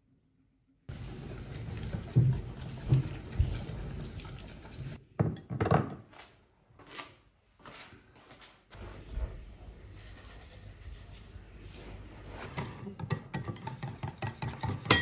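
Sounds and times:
whisk scraping a ceramic bowl: 0.9 - 5.0, 12.4 - 15.0.

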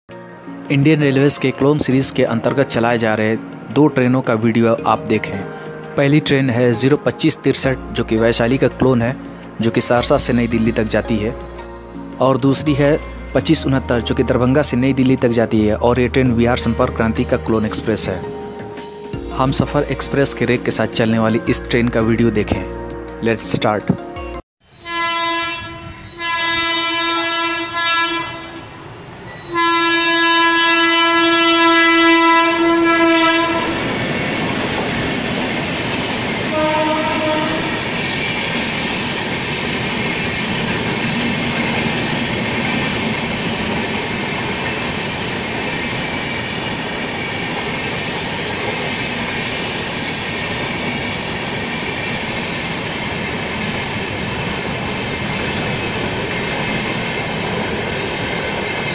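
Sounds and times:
passing train rumble and clickety-clack: 0.1 - 24.3, 24.9 - 58.9
locomotive horn blasts: 24.7 - 28.9, 29.5 - 34.0, 36.4 - 37.9.

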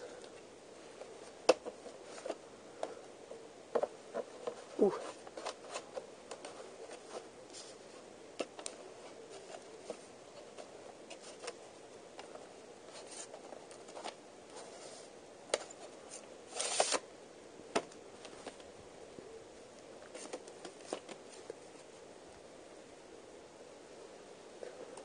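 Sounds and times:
paper rustling: 15.8 - 17.0.

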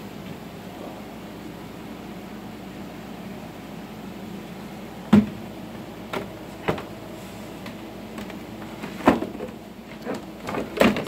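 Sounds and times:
wooden frames knocking: 8.1 - 11.0.

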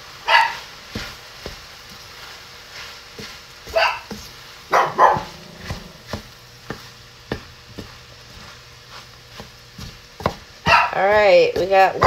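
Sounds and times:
dog barking: 0.2 - 0.7, 3.7 - 4.1, 4.7 - 5.5, 10.6 - 11.0.

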